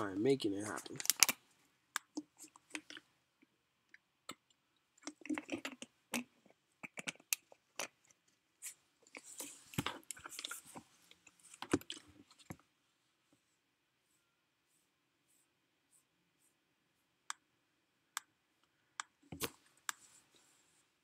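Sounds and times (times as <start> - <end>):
soft clicks and crackles: 0.6 - 12.7.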